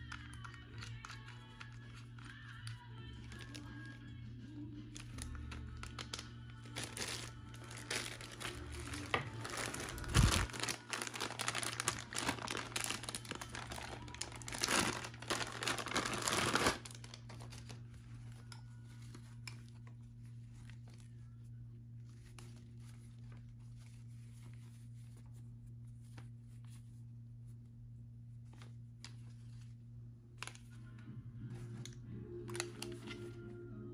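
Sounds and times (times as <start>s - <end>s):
plastic bags crinkling: 0.0s - 3.7s, 5.0s - 21.1s.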